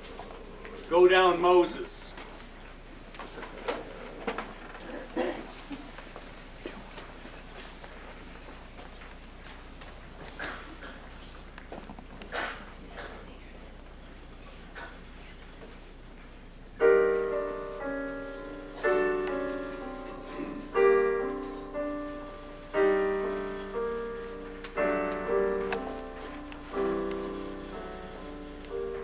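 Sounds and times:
piano chords: 16.7s - 29.0s
piano single notes: 16.8s - 29.0s.

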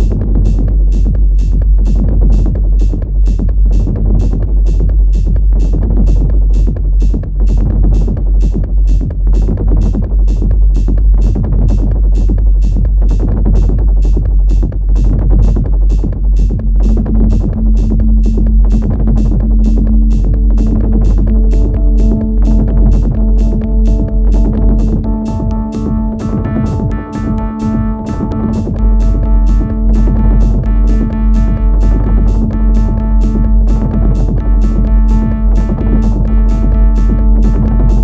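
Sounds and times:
bass line: 0.0s - 38.0s
deep kick drum: 0.0s - 38.0s
hi-hat ticks: 0.0s - 38.0s
synth part: 16.7s - 38.0s
held synth note: 16.8s - 38.0s.

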